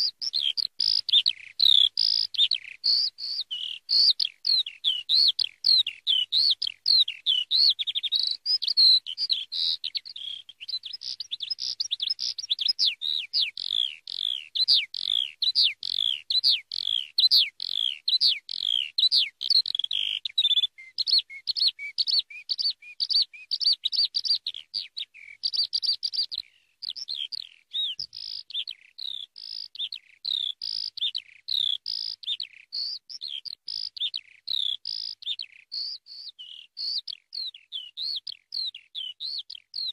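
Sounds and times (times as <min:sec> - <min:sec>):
skylark singing: 0:00.0 - 0:39.9.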